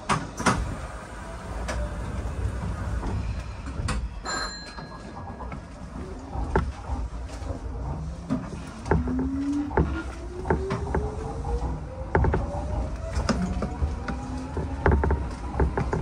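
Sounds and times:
train traction motors whining: 0:00.0 - 0:16.0
wheels knocking over rail joints: 0:04.8 - 0:16.0.

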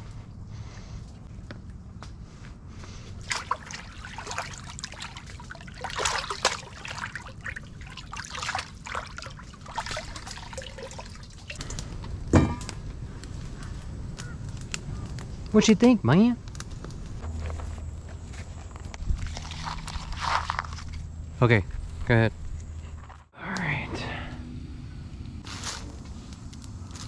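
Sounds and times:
water splashing and trickling: 0:03.2 - 0:12.8, 0:18.9 - 0:21.1.

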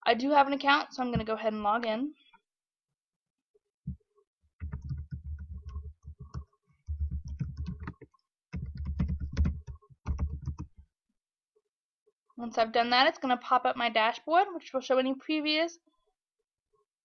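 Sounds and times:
keyboard typing: 0:04.6 - 0:10.8.

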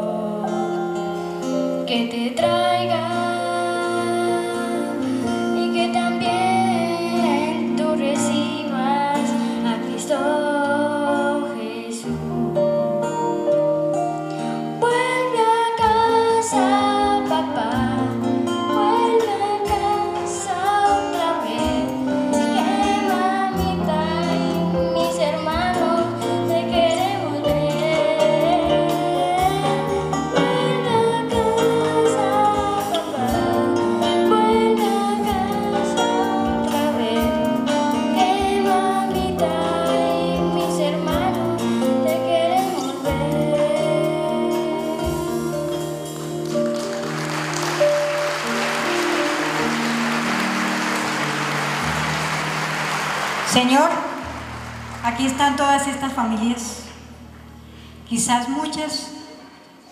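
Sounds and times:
child singing into microphone: 0:00.0 - 0:01.0, 0:01.8 - 0:13.2, 0:14.8 - 0:46.2
instrumental accompaniment: 0:12.0 - 0:58.0.

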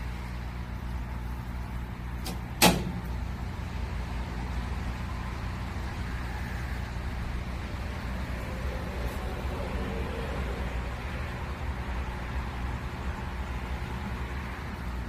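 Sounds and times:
low mechanical hum: 0:00.0 - 0:15.0
sharp click: 0:02.2 - 0:03.0.

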